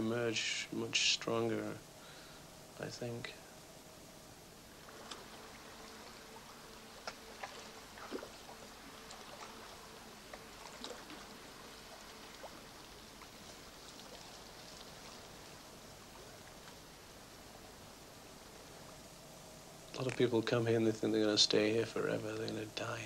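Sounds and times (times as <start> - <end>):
water trickling and lapping: 4.4 - 20.6.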